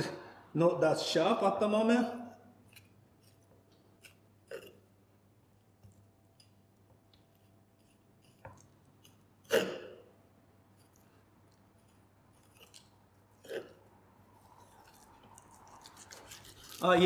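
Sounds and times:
knife slicing raw meat: 5.6s - 17.0s.

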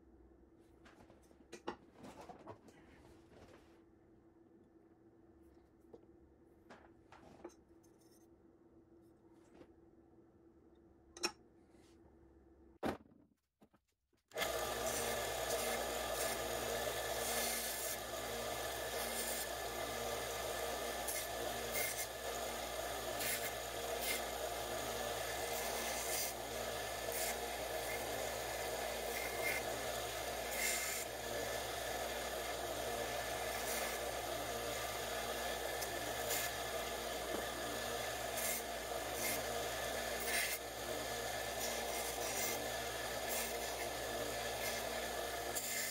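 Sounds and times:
belt sander motor running: 14.4s - 45.9s.

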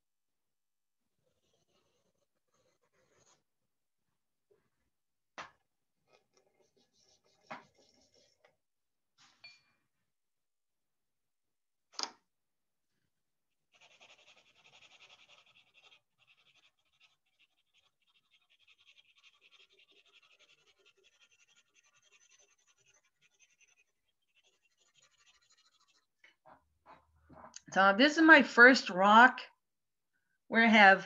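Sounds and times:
pencil scratching on paper: 1.1s - 3.6s, 6.0s - 8.6s, 13.7s - 26.4s.

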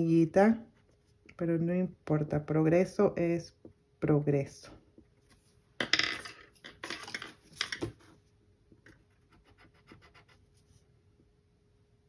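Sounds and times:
scratchy colouring strokes on paper: 9.0s - 10.9s.

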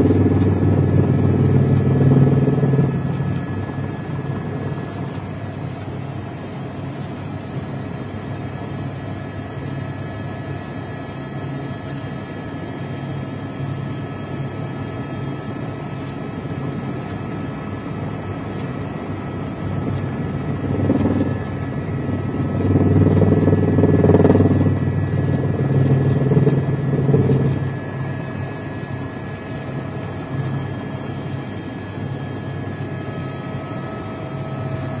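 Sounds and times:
helicopter engine and rotor drone: 0.0s - 35.0s
faint high whine: 12.9s - 35.0s.

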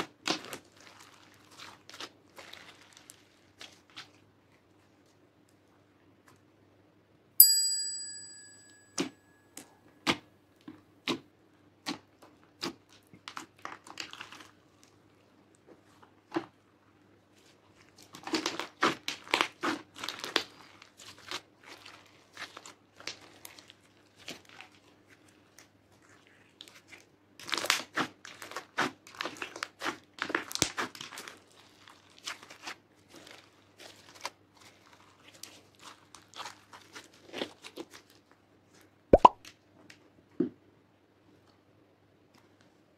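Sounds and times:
slime clicking and popping: 39.2s - 39.4s.

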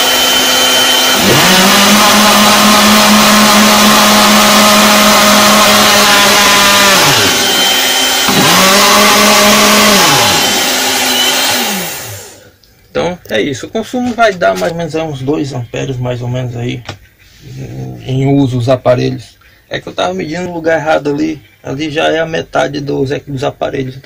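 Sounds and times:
blender motor running: 0.0s - 12.5s.

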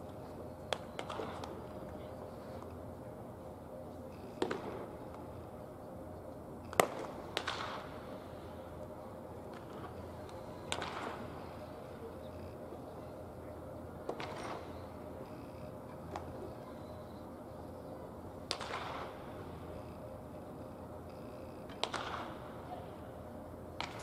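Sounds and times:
bat cracking against ball: 4.3s - 4.8s, 6.6s - 7.9s, 10.7s - 11.3s, 14.1s - 14.7s, 18.5s - 19.2s, 21.7s - 22.4s, 23.8s - 24.0s.

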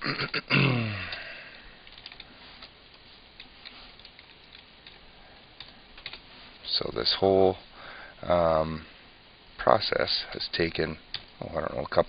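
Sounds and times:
keyboard keys clicking: 1.8s - 2.7s, 3.4s - 5.0s, 5.6s - 6.2s.

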